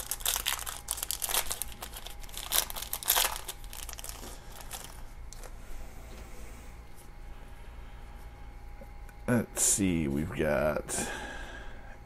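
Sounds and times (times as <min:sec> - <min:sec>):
foil wrapper crinkling and tearing: 0:00.0 - 0:05.5.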